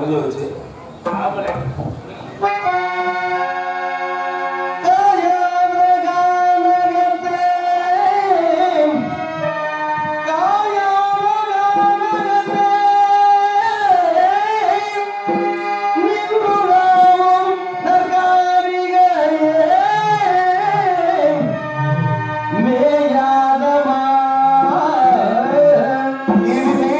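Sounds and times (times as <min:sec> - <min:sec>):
harmonium chord: 0:02.3 - 0:26.9
person singing ornamented notes: 0:22.4 - 0:26.9.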